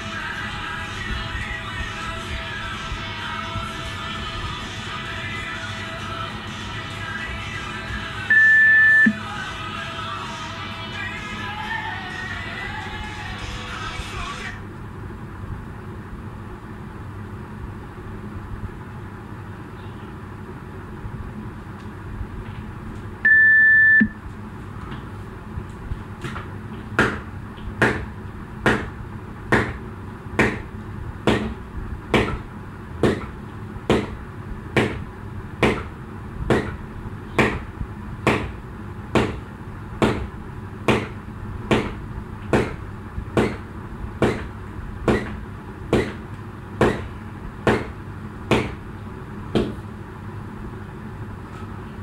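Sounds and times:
electronic timer beep: 8.3 - 9.2, 23.3 - 24.2.

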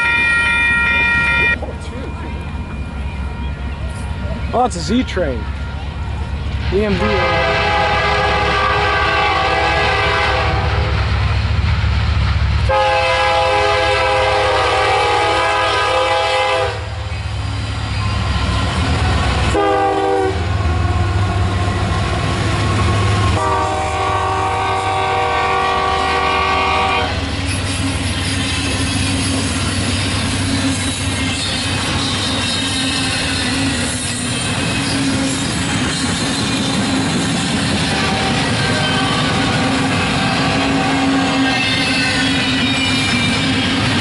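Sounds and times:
train engine rumble: 0.0 - 44.0
locomotive air horn blasts: 7.0 - 11.0, 12.7 - 17.0, 19.5 - 20.7, 22.6 - 27.2, 37.9 - 42.4.

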